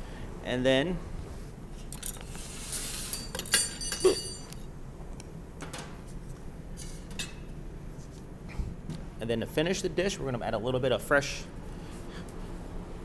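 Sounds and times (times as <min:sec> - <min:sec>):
kitchen utensils clinking: 0:02.8 - 0:04.6.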